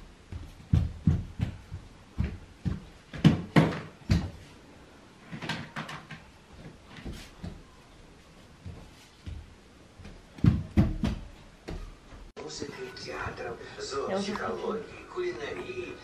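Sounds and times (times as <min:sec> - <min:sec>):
child stomping on hard floor: 0:00.0 - 0:04.5, 0:06.5 - 0:07.8, 0:08.6 - 0:12.3.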